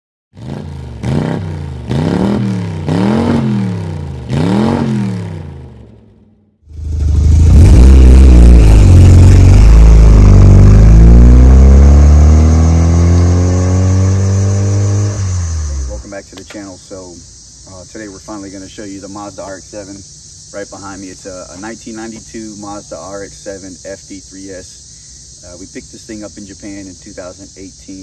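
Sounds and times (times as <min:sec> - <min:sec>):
car accelerating away: 0:00.4 - 0:05.9, 0:06.7 - 0:16.1
rotary engine revving: 0:00.4 - 0:05.9, 0:06.7 - 0:16.1.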